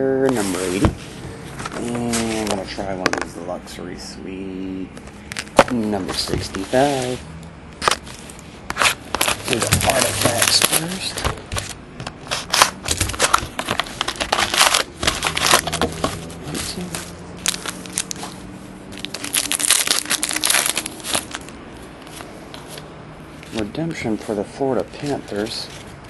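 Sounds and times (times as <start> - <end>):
plastic wrapping crinkling and tearing: 7.8 - 22.8.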